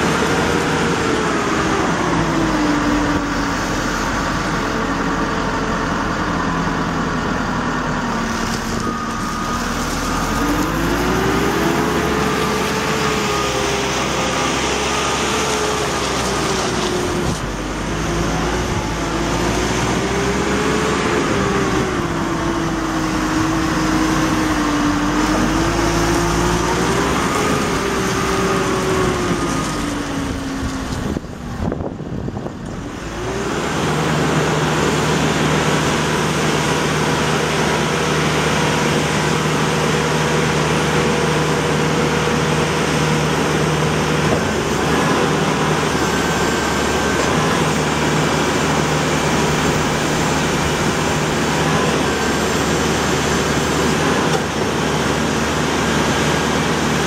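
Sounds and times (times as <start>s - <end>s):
diesel engine revving: 0.0s - 57.0s.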